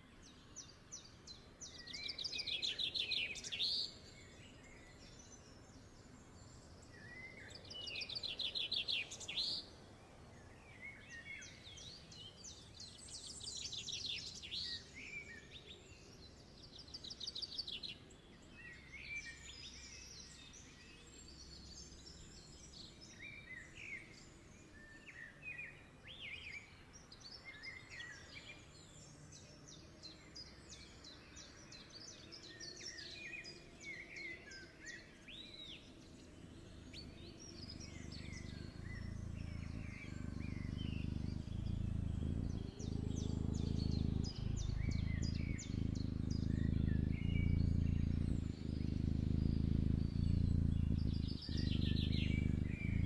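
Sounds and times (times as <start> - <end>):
birds chirping and trilling: 0.0 - 53.0
low steady hum: 36.4 - 53.0.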